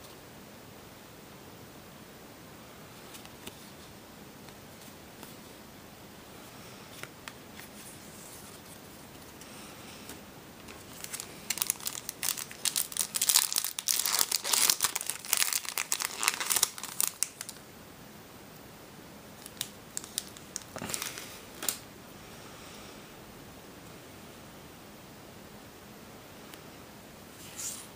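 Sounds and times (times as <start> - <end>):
foil wrapper crinkling and tearing: 10.8 - 17.6, 19.4 - 21.8.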